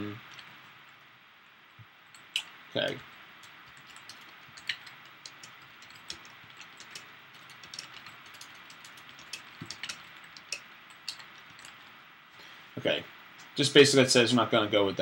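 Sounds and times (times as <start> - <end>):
keyboard typing clicks: 2.1 - 11.9.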